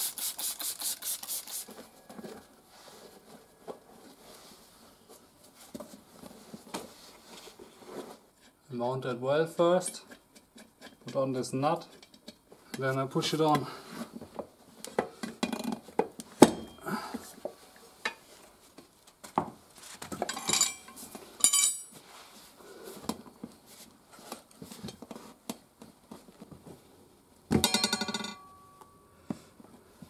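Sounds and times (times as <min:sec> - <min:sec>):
metal clinks and knocks: 0:20.2 - 0:22.0, 0:27.5 - 0:28.6.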